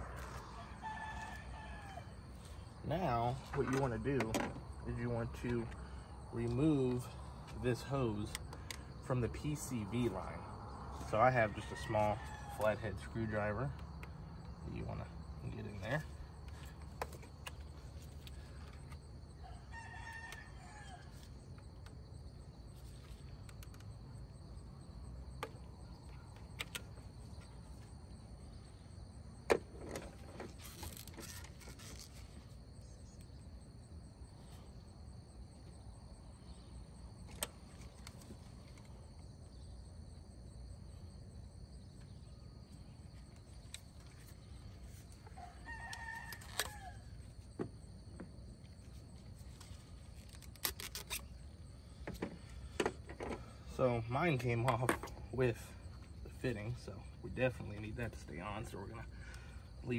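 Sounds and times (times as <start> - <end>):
rooster crowing: 0.0 - 2.6, 19.4 - 21.3, 45.2 - 47.3.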